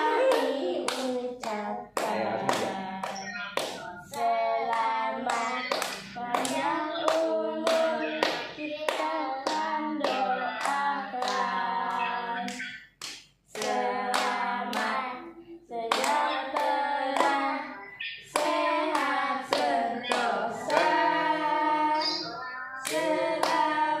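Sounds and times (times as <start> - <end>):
group singing: 0.0 - 12.9, 13.5 - 24.0
hand clapping in time: 0.0 - 15.0.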